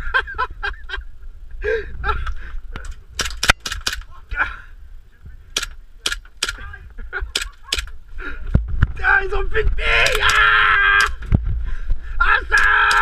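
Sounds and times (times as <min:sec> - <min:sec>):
airsoft gun shots: 0:03.2 - 0:04.0
people shouting: 0:09.1 - 0:11.2, 0:12.2 - 0:13.0.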